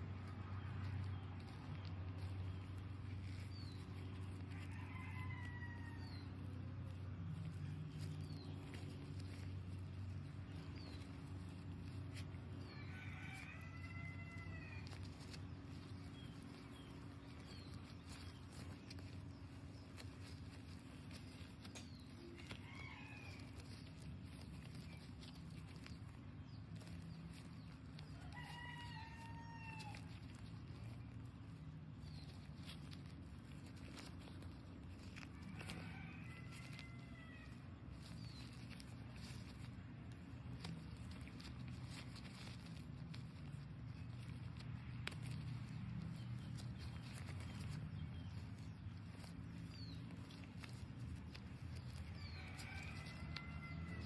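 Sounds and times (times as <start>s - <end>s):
chickens calling: 11.0s - 43.6s, 47.0s - 54.0s.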